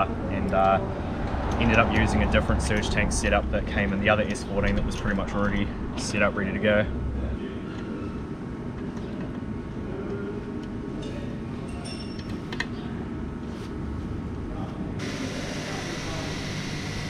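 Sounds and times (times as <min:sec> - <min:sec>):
low outdoor rumble: 0:00.0 - 0:11.0
small metallic clicks and clinks: 0:11.7 - 0:12.7.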